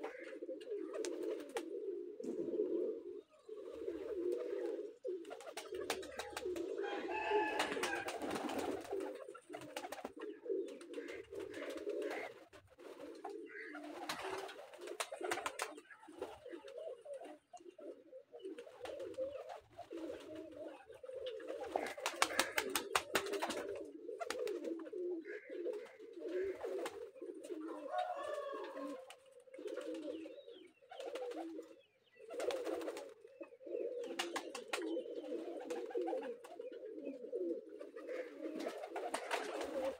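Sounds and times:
pigeons cooing: 0.0 - 39.9
wings flapping: 0.9 - 1.8, 3.7 - 16.8, 18.6 - 20.6, 21.3 - 24.9, 25.7 - 30.2, 31.0 - 31.6, 32.3 - 33.2, 34.0 - 36.7, 37.8 - 39.9.

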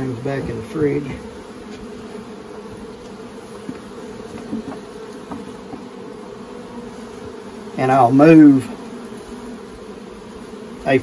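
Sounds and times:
bees buzzing: 0.0 - 11.0
faint knocks: 3.0 - 5.9.

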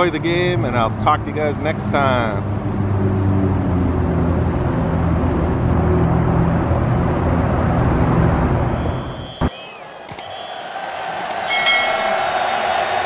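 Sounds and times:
vehicle engine running: 0.0 - 9.5
road traffic noise: 0.0 - 13.0.

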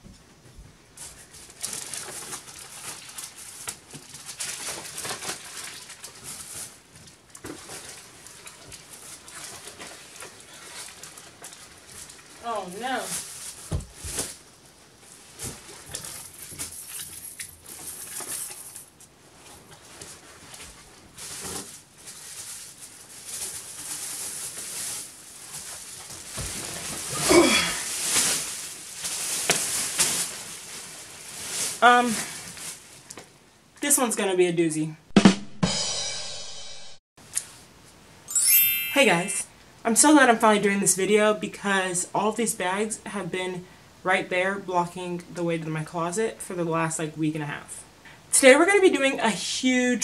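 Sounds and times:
shopping bags rustling: 1.0 - 33.1.

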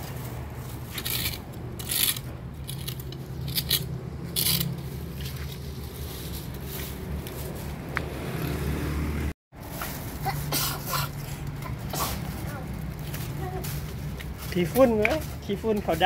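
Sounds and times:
leaves and litter scraping: 0.0 - 16.0.

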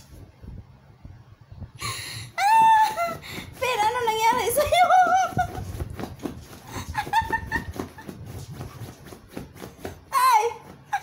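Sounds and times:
dog scratching at cushion: 3.4 - 11.0.

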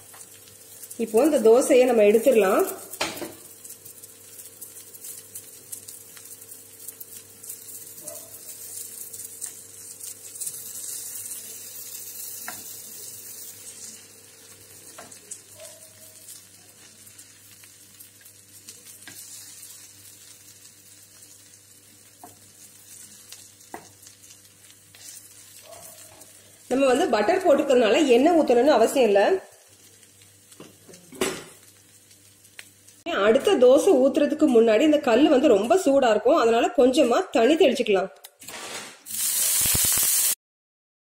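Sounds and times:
food sizzling in butter: 0.0 - 35.9, 38.6 - 40.4
spatula ticks and scrapes: 3.6 - 12.7, 14.9 - 19.9, 22.1 - 26.2.

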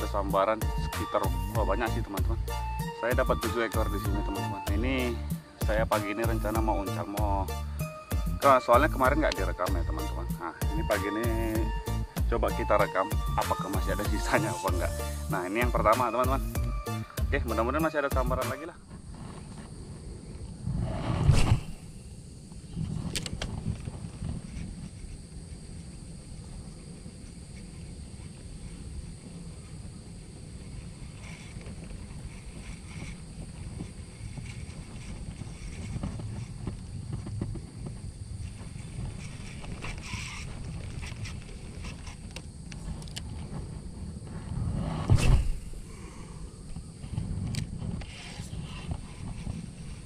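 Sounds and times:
wind rumble: 0.0 - 50.0
microphone handling noise: 18.8 - 26.0, 27.1 - 50.0.

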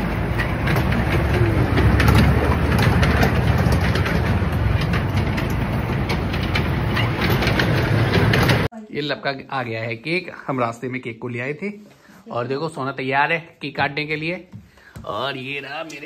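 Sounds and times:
kiddie train rumbling: 0.0 - 8.7
sharp clicks of train: 0.0 - 8.7.

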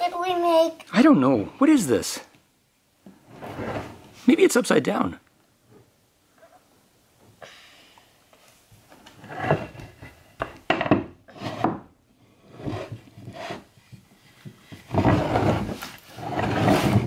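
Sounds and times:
wooden stool knocking on floor: 10.4 - 11.8.

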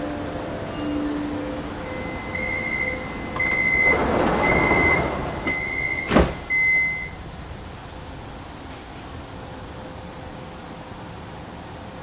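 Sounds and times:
train door warning chime: 0.0 - 7.2
sliding doors closing thud: 3.3 - 6.7.

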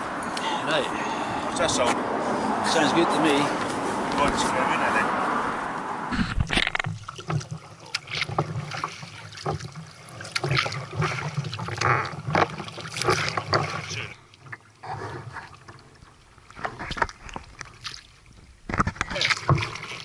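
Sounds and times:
water trickling along hull: 0.0 - 20.0
paddle splashing in water: 6.2 - 20.0.

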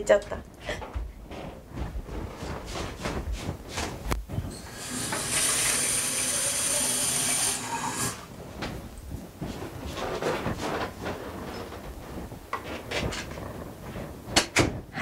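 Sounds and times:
tap water filling container: 4.9 - 8.2.

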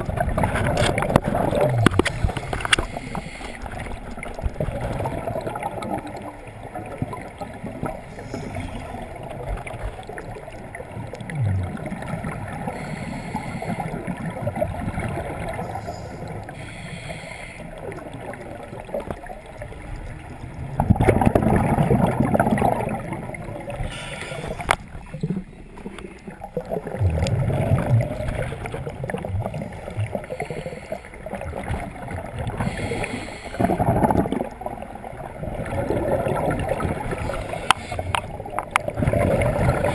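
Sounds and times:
exhaled regulator bubbles surging: 0.0 - 13.0, 17.8 - 30.4, 31.2 - 39.9
underwater scuba breathing bubbles: 0.0 - 39.9.

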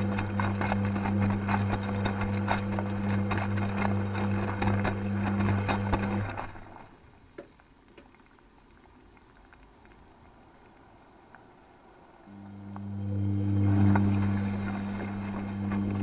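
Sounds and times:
laundry sloshing and knocking: 0.0 - 7.0
washing machine motor hum: 0.0 - 7.1, 12.3 - 16.0.

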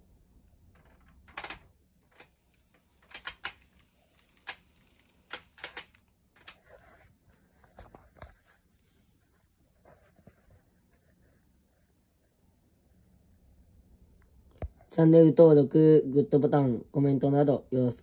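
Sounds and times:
model train wheels clicking: 0.8 - 6.6.

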